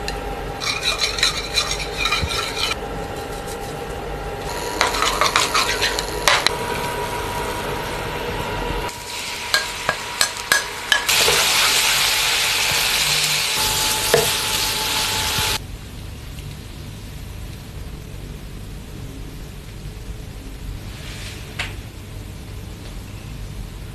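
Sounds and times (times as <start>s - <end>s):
sauce sizzling in hot pan: 4.4s - 15.6s.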